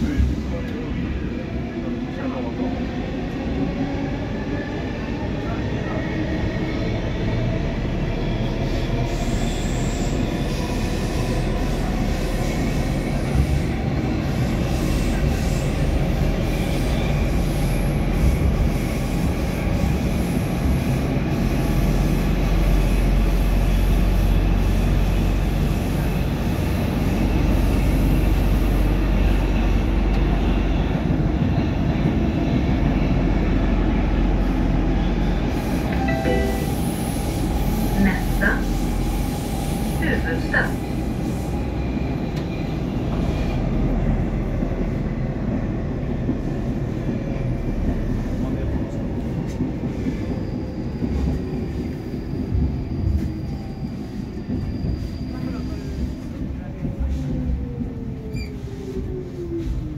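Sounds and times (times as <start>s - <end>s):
train wheels rumbling on rail: 0.0s - 59.9s.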